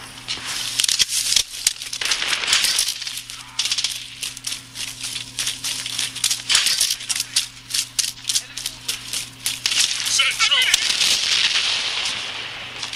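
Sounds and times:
running footsteps: 0:00.0 - 0:12.9
steady low hum: 0:00.0 - 0:12.9
gear rattle: 0:00.6 - 0:10.2.

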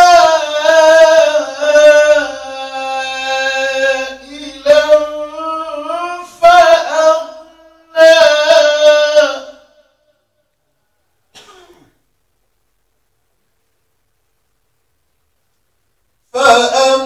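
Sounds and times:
man chanting melodically: 0:00.0 - 0:10.2, 0:16.3 - 0:17.0.

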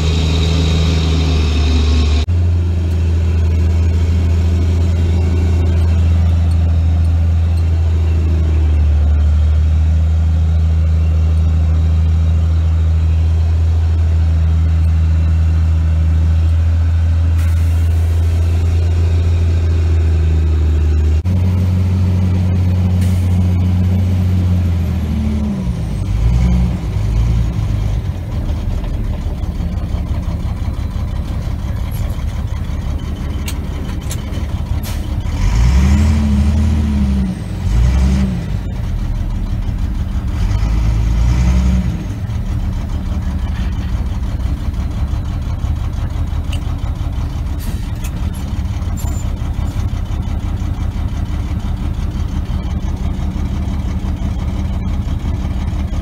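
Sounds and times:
engine revving up and down: 0:00.0 - 0:06.8, 0:17.9 - 0:28.2, 0:33.0 - 0:43.8
tractor diesel engine drone: 0:00.0 - 0:56.0.

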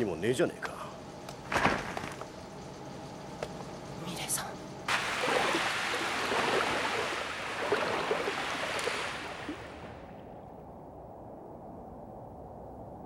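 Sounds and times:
faint low hum: 0:00.0 - 0:13.0
rain pouring: 0:04.9 - 0:09.9.

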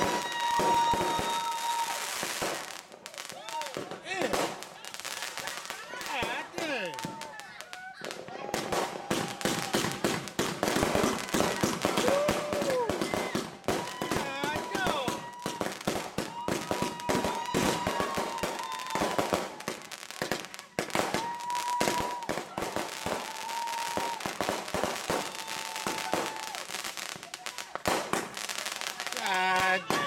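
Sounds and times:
fireworks bangs and crackles: 0:00.0 - 0:30.0.

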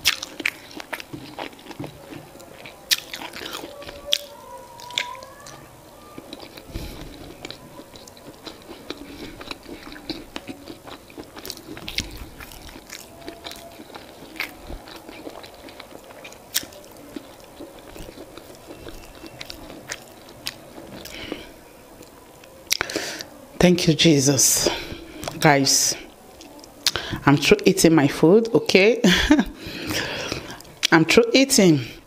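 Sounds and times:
chewing soft food: 0:00.0 - 0:23.4, 0:26.0 - 0:27.1.

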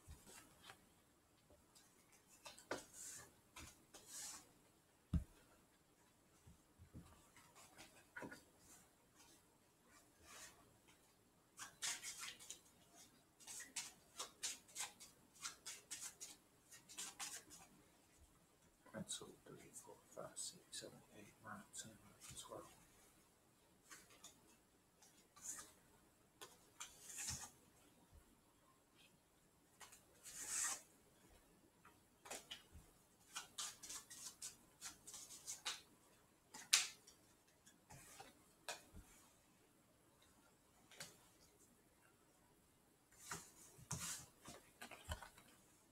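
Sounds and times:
playing cards shuffling: 0:33.2 - 0:35.8
playing cards clicking and snapping: 0:36.5 - 0:37.1.

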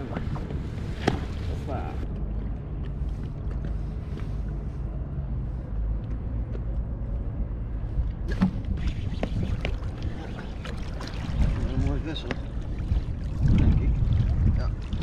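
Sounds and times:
wind rumble on microphone: 0:00.0 - 0:15.0
water lapping against float tube: 0:08.3 - 0:15.0.

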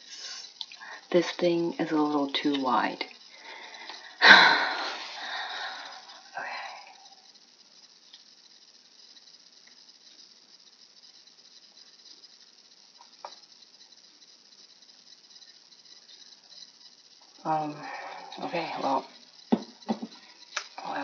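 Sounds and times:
steady hiss: 0:00.0 - 0:21.0
small clicks: 0:00.3 - 0:00.9, 0:07.3 - 0:17.4, 0:19.2 - 0:20.9.

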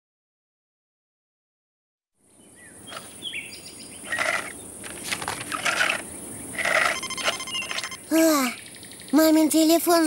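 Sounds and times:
birds chirping: 0:02.2 - 0:10.0
high insect hiss: 0:02.3 - 0:09.4.

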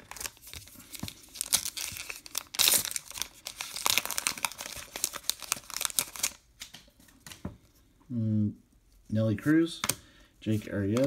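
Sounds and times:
wrapper crinkling and tearing: 0:00.0 - 0:06.7.

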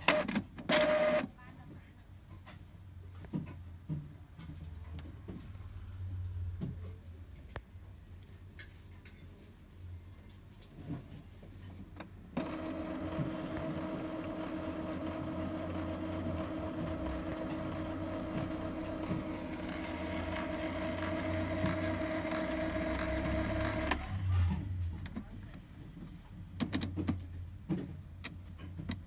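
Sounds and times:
printer motor humming: 0:00.0 - 0:01.2, 0:12.4 - 0:24.2.

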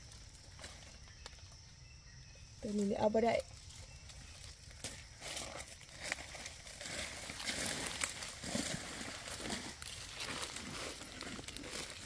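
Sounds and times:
dry leaves crunching underfoot: 0:02.7 - 0:12.0.

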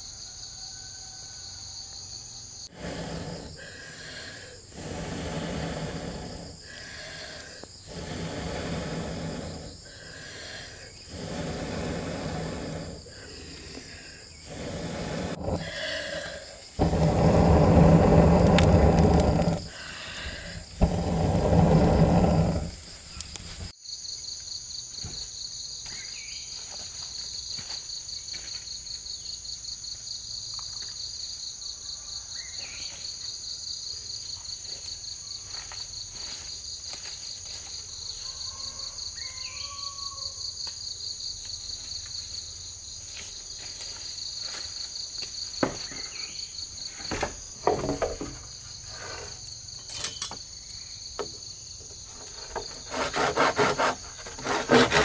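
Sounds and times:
insects chirring: 0:00.0 - 0:55.0
person blowing on a fire: 0:02.7 - 0:23.7.

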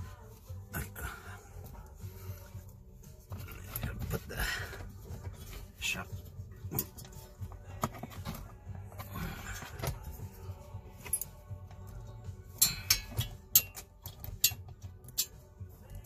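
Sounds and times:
metallic tool clicks and knocks: 0:12.6 - 0:15.4.

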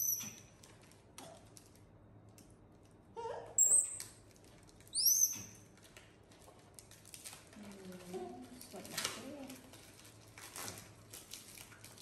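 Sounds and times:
monkey squealing: 0:03.2 - 0:04.0, 0:05.0 - 0:05.6
plastic wrapping crinkling: 0:04.0 - 0:04.9, 0:05.7 - 0:12.0.

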